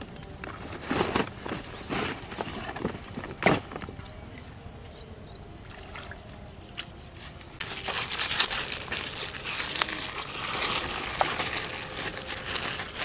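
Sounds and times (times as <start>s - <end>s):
plastic bag crinkling: 7.6s - 13.0s.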